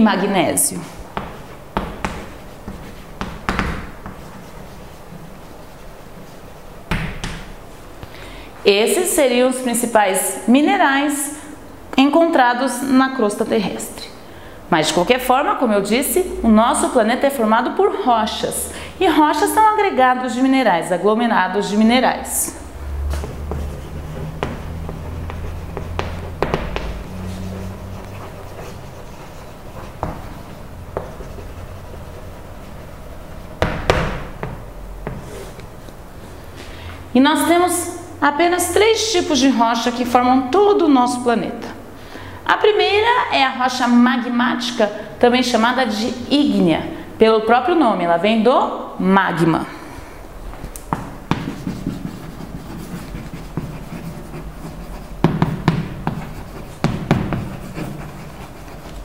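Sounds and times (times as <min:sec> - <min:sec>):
chalk tapping on chalkboard: 0:01.1 - 0:05.1, 0:23.0 - 0:32.4, 0:50.7 - 0:59.0.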